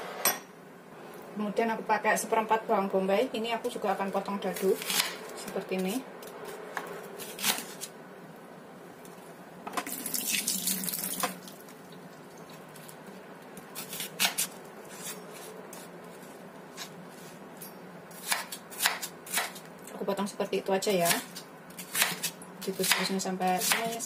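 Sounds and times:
knife slicing onion: 4.5 - 7.9, 13.7 - 17.4, 18.1 - 19.7, 21.0 - 24.0.

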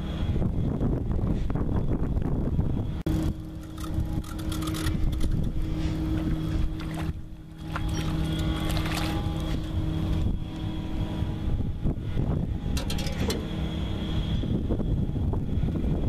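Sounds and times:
boat engine low hum: 0.0 - 16.0
wind rumbling on microphone: 0.0 - 16.0
clicks and knocks of fishing rod: 3.6 - 5.6.

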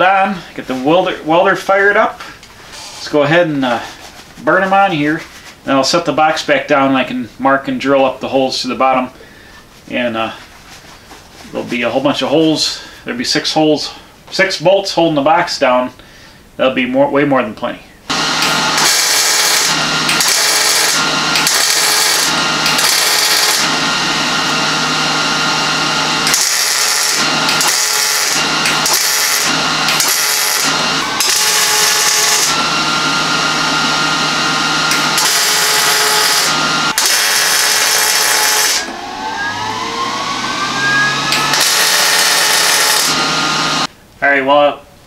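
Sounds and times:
welding arc crackling: 18.3 - 23.8, 26.2 - 32.6, 34.9 - 38.8, 41.3 - 43.9
faint rising whine: 38.8 - 43.9.

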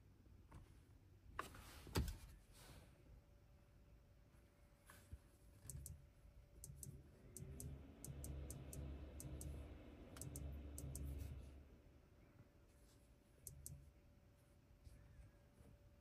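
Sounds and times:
touchscreen clicking: 6.6 - 11.4
low rumble: 6.6 - 12.3.

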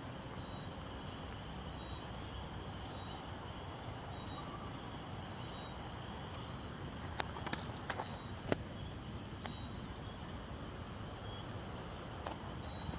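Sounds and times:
insects trilling: 0.0 - 12.9.

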